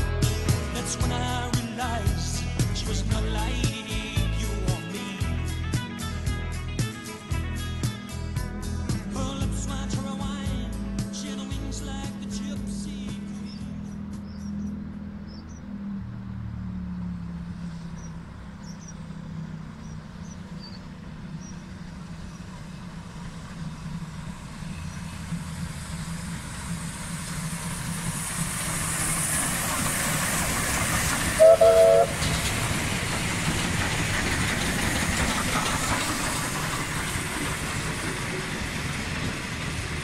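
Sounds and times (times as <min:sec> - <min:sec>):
steam locomotives rumbling: 0:00.0 - 0:40.0
steam whistle blast: 0:31.3 - 0:32.3.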